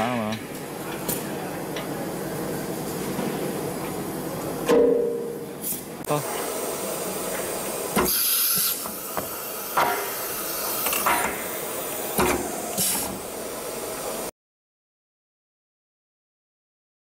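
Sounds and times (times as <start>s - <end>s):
compressed air hiss: 8.0s - 13.2s.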